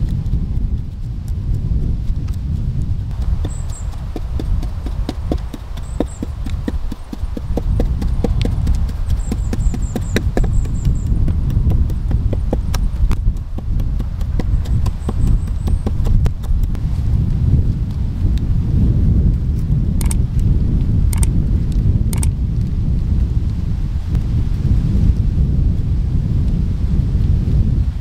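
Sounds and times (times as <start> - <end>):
low rumble: 0.0 - 28.0
small bird chirping: 3.1 - 13.3, 14.3 - 16.7.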